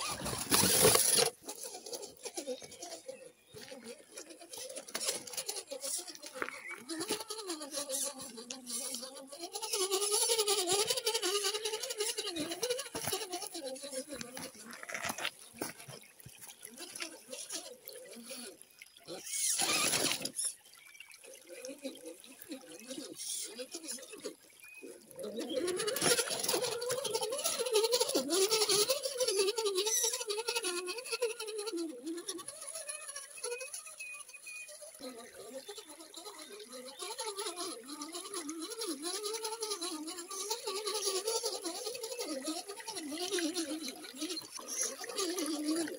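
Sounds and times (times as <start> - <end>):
rattling and clicking over rocks: 0.0 - 2.2, 12.4 - 17.0
splashing through water: 14.4 - 23.5.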